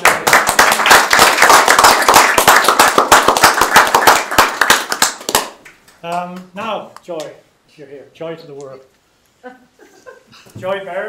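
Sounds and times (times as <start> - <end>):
people applauding: 0.0 - 6.5.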